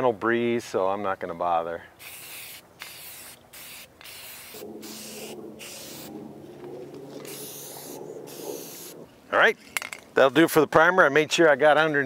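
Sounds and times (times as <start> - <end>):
aerosol spray can hissing: 2.0 - 6.2, 7.2 - 9.0.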